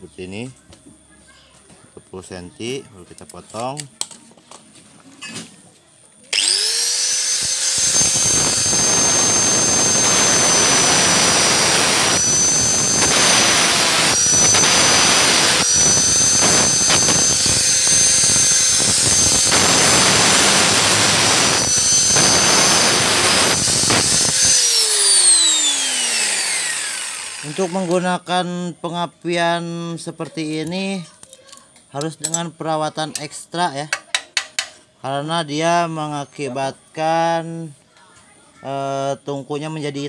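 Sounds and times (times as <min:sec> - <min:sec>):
angle grinder cutting metal rod: 0:06.3 - 0:28.1.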